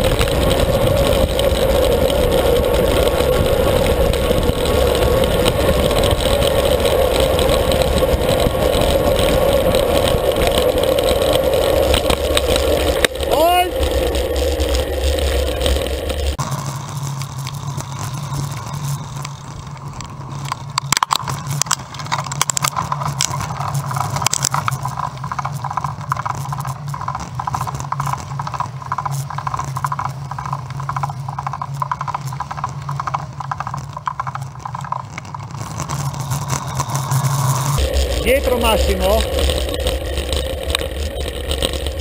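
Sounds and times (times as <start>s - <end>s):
bike rolling hum: 0.0s - 42.0s
rattles and knocks of bike frame: 19.9s - 42.0s.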